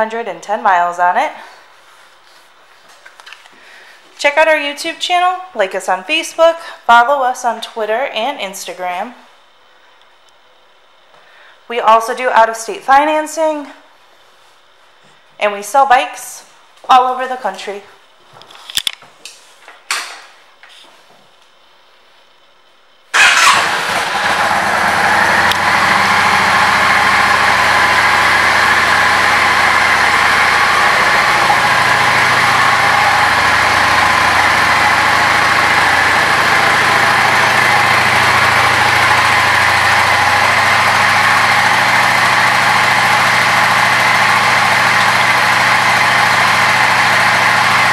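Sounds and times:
motorcycle engine starting and idling: 23.1 - 47.9.

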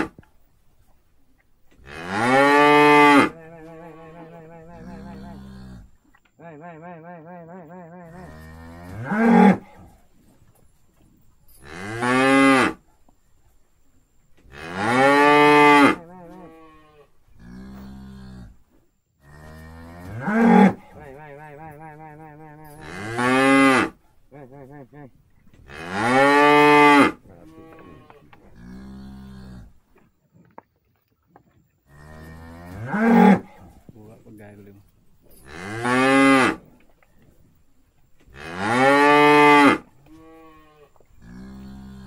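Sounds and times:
cows mooing loudly: 1.8 - 6.0, 8.0 - 9.9, 14.5 - 18.6, 19.2 - 25.0, 25.7 - 29.8, 31.9 - 33.8, 35.4 - 36.7, 38.3 - 42.0
quieter low cow moos: 1.8 - 10.1, 14.4 - 30.0, 31.7 - 42.0.

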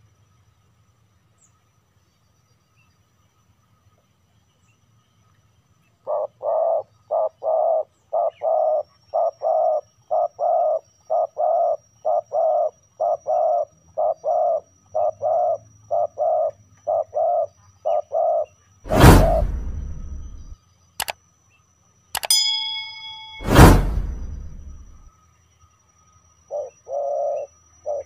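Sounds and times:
dove cooing: 6.1 - 18.5, 26.5 - 28.0
bell-like ding: 22.2 - 25.1.

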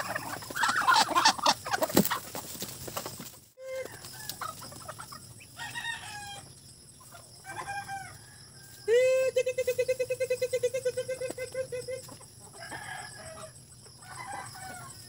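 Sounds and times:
chickens and ducks calling: 0.0 - 15.0
rooster crowing: 5.6 - 6.5, 7.4 - 9.0, 12.6 - 15.0.

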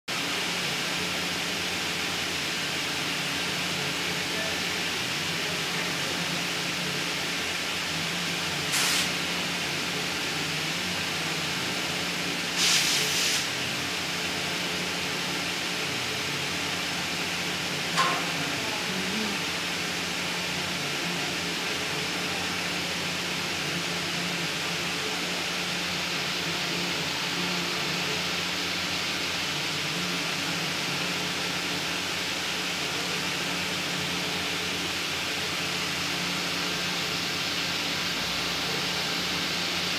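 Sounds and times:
steady background hiss: 0.3 - 39.9
short rushes of hissing noise: 8.7 - 9.2, 12.6 - 13.5.

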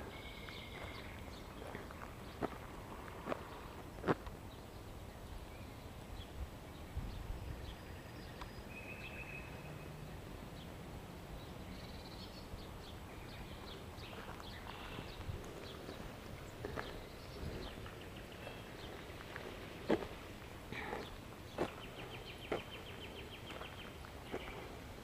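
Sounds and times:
light footsteps on a path: 0.0 - 4.6, 12.3 - 25.0.

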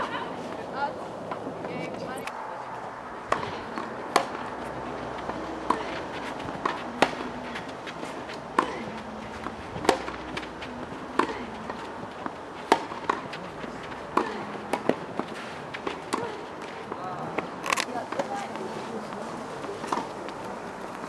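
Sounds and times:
tennis ball struck by rackets: 3.2 - 17.0, 19.8 - 20.1.

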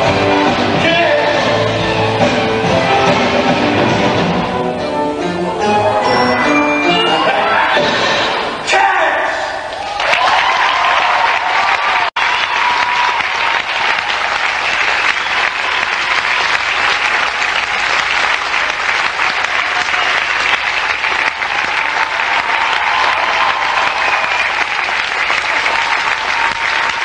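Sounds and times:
audience applauding: 9.7 - 27.0.

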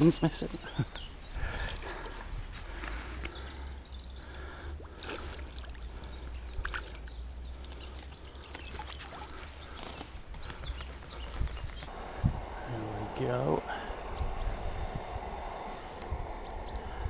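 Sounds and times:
light splashes and drips: 4.8 - 11.0
steady low rumble: 11.0 - 17.0.

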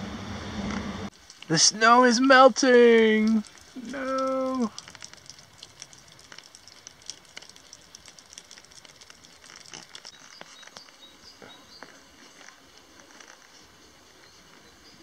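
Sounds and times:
meltwater dripping: 1.1 - 11.1.

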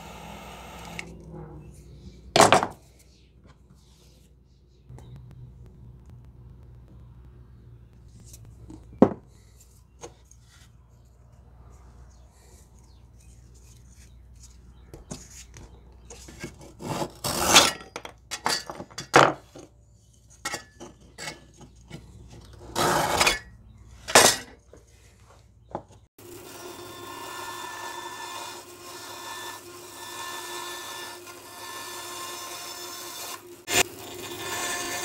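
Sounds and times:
hand saw cutting wood: 16.4 - 17.8, 22.6 - 23.4, 26.3 - 35.0.

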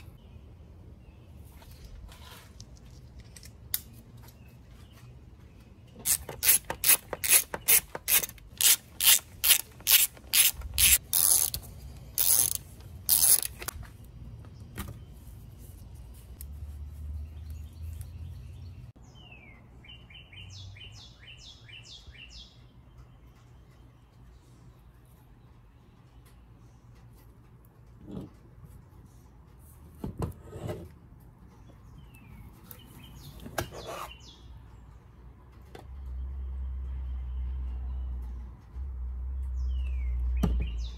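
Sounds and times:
hand ratchet clicking: 6.1 - 13.7.

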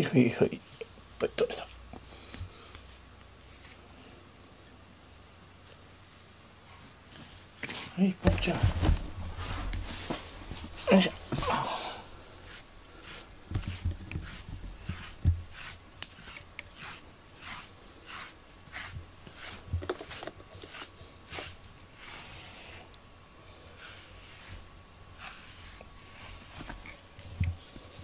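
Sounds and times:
soft handling bumps: 6.7 - 12.7, 13.4 - 15.6
brush rasping through cat fur: 12.3 - 23.0, 23.6 - 28.0.

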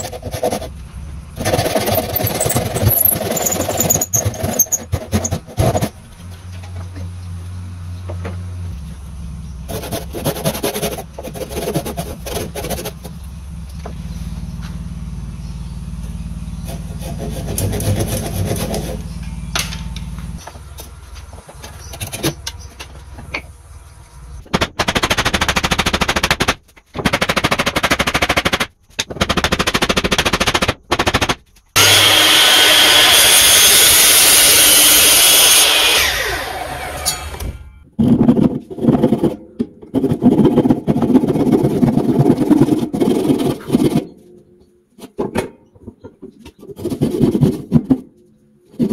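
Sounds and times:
hand saw cutting wood: 0.0 - 0.8, 1.4 - 6.0, 9.7 - 13.1, 16.6 - 19.1, 31.8 - 37.4, 38.5 - 44.1
loud machine noise: 0.0 - 6.4, 30.6 - 37.7
low hum: 0.0 - 24.5.

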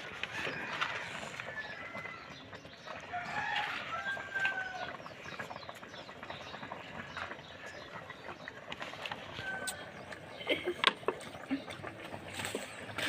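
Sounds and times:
chickens calling: 0.0 - 13.0
rooster crowing: 3.1 - 5.0, 9.4 - 9.9.

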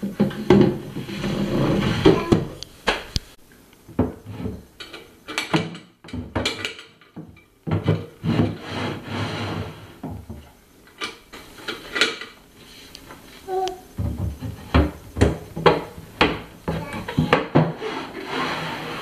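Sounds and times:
wooden panel sliding and scraping: 0.2 - 2.6, 8.2 - 10.0, 16.7 - 19.0.

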